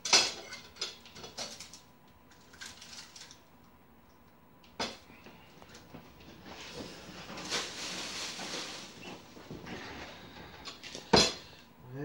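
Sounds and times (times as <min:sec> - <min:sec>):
onion skin crackling and rustling: 0:06.4 - 0:09.6.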